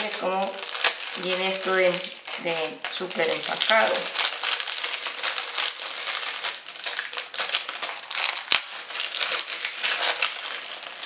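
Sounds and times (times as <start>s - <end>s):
packaging crinkling: 0.0s - 11.0s.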